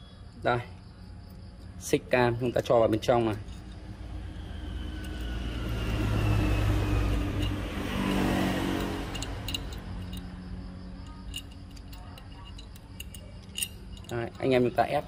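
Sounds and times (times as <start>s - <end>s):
vehicle engine rumble passing: 3.0s - 14.1s.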